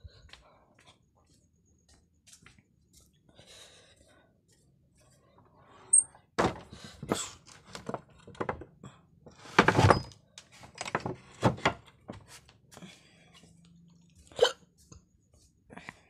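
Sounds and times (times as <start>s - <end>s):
irregular thuds and knocks: 6.4s - 8.7s.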